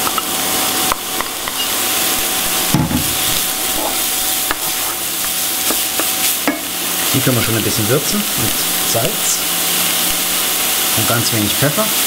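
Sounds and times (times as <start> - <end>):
vegetables sizzling in pot: 0.0 - 12.0
wooden spoon scraping pot: 1.2 - 5.8.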